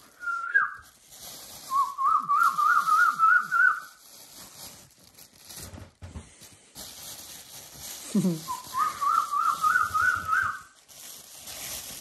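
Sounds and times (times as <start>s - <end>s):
plastic bag rustling: 0.0s - 12.0s
person whistling: 0.1s - 0.8s, 1.7s - 4.0s, 8.4s - 10.7s.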